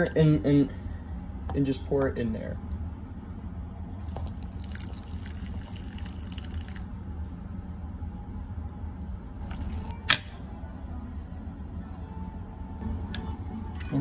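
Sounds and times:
hot water pouring onto oats: 4.0 - 6.9.

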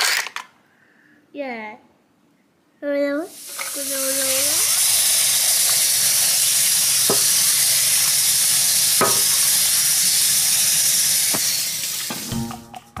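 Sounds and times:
music: 12.1 - 13.0.

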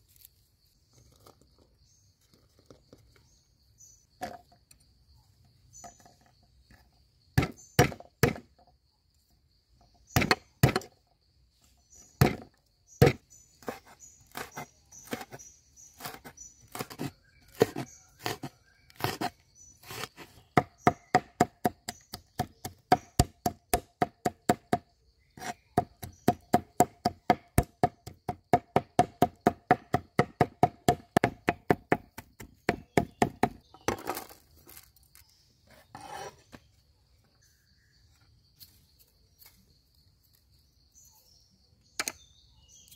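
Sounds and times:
knife chopping on wooden board: 7.4 - 8.4, 12.2 - 12.4, 13.0 - 15.4, 16.0 - 24.8, 25.4 - 33.6.

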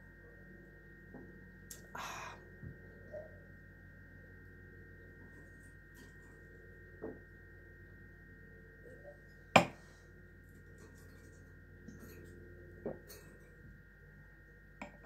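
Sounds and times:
faint steady hum: 0.0 - 15.0
glass set down on table clink: 9.6 - 9.8.

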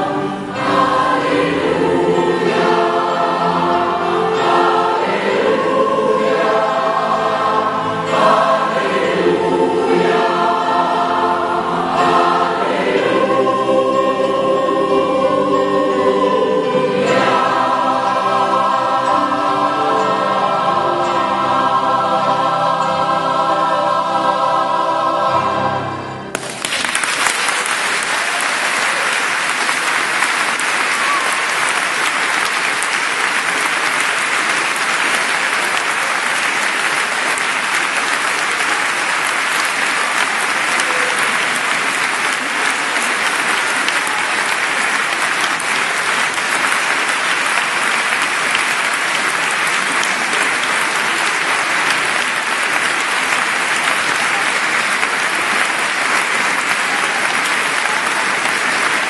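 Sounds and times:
audience applause: 0.0 - 1.6, 26.3 - 59.0
choir singing a chord: 0.0 - 26.4.

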